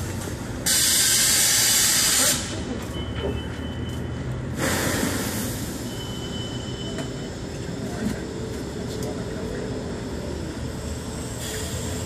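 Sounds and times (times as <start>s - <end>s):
city traffic rumbling: 0.0s - 12.0s
faint high squeal: 5.7s - 7.4s.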